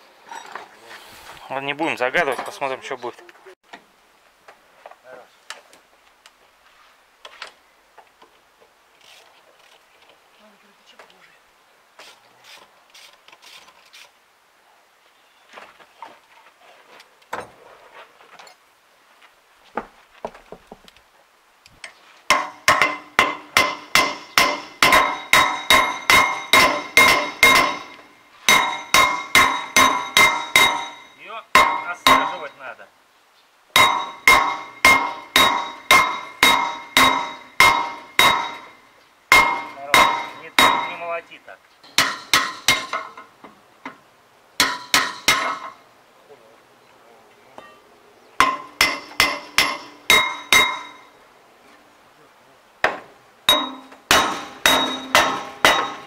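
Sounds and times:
hammer blows on steel: 0:22.3 - 0:32.6, 0:33.8 - 0:41.1.

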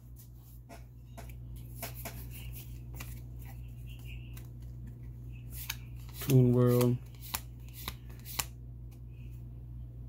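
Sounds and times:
trading cards flicking and clicking: 0:01.2 - 0:08.6.

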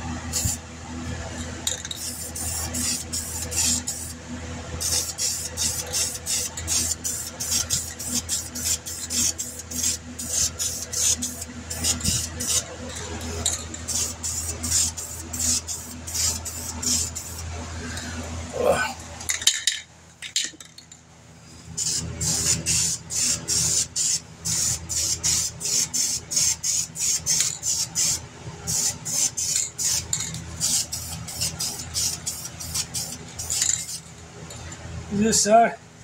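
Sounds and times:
spray can rattling: 0:01.6 - 0:04.1, 0:04.8 - 0:17.4, 0:21.8 - 0:34.2.

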